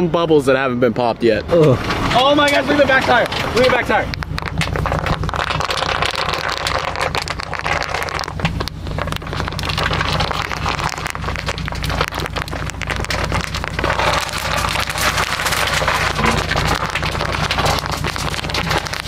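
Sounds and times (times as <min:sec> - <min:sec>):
truck engine hum: 0:00.0 - 0:19.0
bubble wrap popping: 0:04.1 - 0:19.0.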